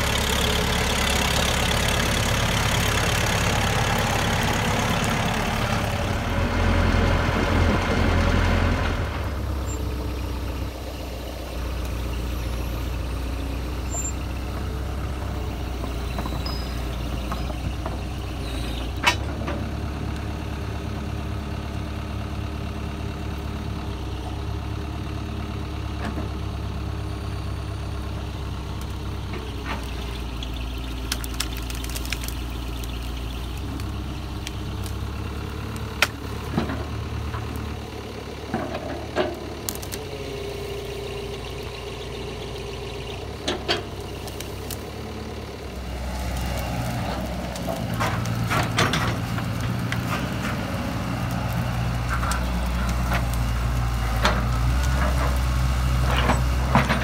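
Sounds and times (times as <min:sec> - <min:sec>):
excavator diesel engine running: 0:00.0 - 0:57.0
sharp cracks: 0:31.0 - 0:33.5.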